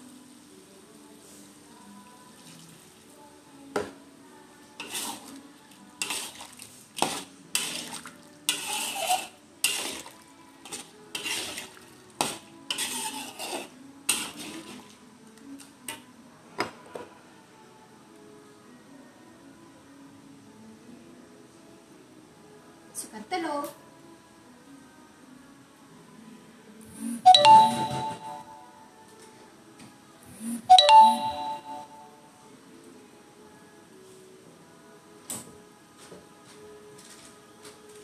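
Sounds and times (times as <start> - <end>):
metal spatula scraping a wok: 4.8 - 5.4, 6.0 - 14.9.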